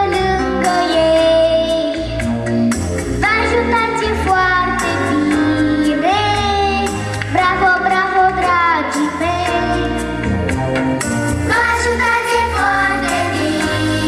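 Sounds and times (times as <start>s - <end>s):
girl singing into microphone: 0.0s - 2.3s, 3.2s - 9.9s
backing music with bass beat: 2.2s - 3.4s.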